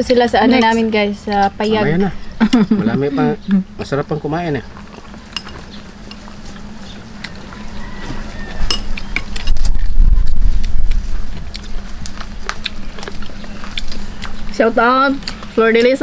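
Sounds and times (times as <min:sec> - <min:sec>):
chewing: 0:04.6 - 0:16.0.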